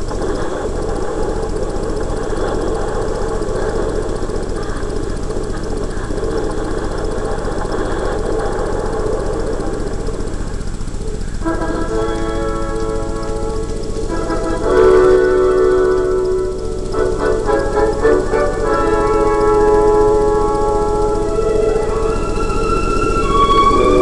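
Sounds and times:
dense fire roar: 0:00.0 - 0:24.0.

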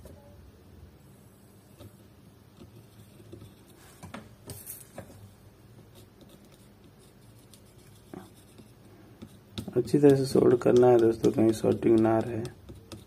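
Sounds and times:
soldering iron scraping and tapping: 0:09.2 - 0:13.0.

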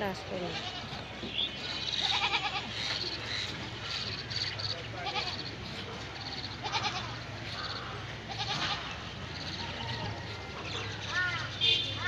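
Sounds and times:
goats bleating: 0:00.3 - 0:01.1, 0:01.8 - 0:03.2, 0:04.8 - 0:11.8.

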